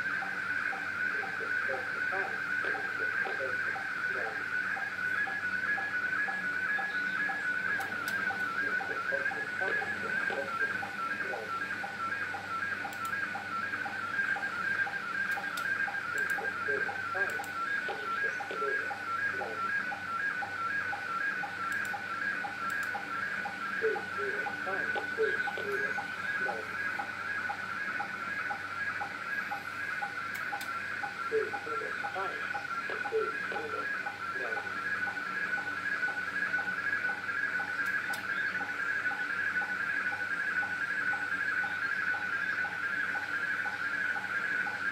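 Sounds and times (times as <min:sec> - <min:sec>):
warbling signal tone: 0:00.0 - 0:30.2
lower sync blips: 0:00.0 - 0:44.9.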